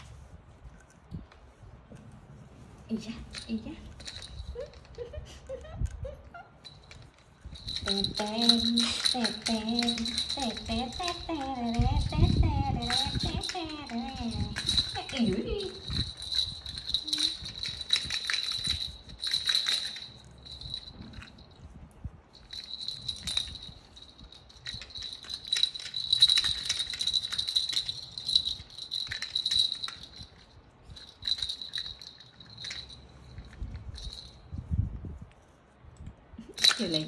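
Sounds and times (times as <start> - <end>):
plastic baby rattle jingling: 3.3 - 5.1, 6.6 - 21.7, 22.4 - 34.4, 36.5 - 37.0.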